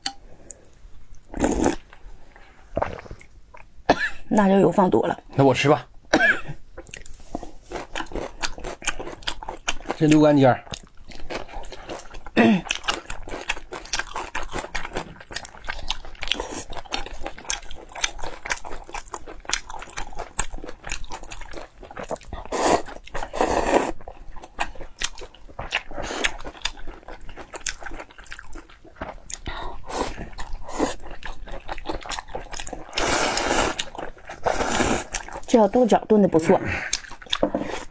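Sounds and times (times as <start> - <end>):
wet chewing and lip-smacking: 10.7 - 35.6, 36.9 - 37.9
slurping noodles: 32.8 - 35.4.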